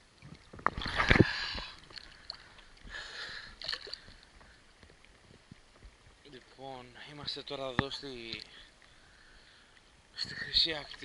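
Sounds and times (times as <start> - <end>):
seawater splashing and sloshing: 0.3 - 6.2.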